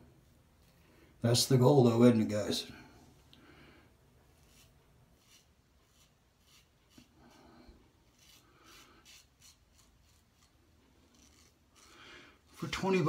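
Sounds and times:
razor scraping stubble: 0:04.3 - 0:07.4, 0:08.0 - 0:13.0.

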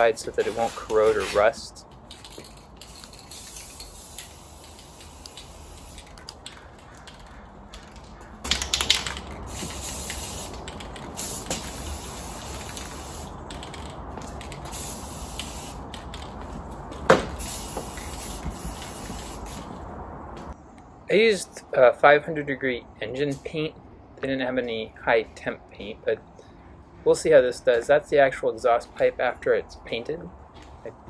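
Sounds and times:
aerosol spray can hissing: 0:02.9 - 0:06.1, 0:09.5 - 0:10.6, 0:11.2 - 0:13.3, 0:14.7 - 0:15.9, 0:17.4 - 0:19.6.

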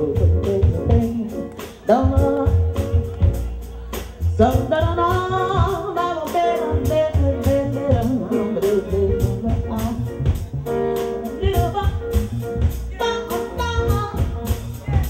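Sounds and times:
drum kit beat: 0:00.0 - 0:15.0
jazz-funk band playing: 0:00.0 - 0:15.0
melodic lead line: 0:00.0 - 0:15.0.

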